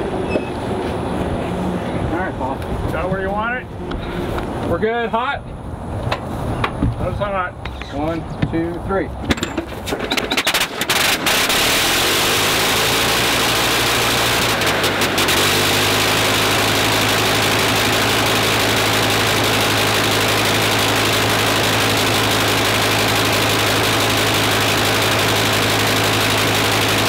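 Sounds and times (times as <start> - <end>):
biplane engine sputtering and running: 9.3 - 27.0.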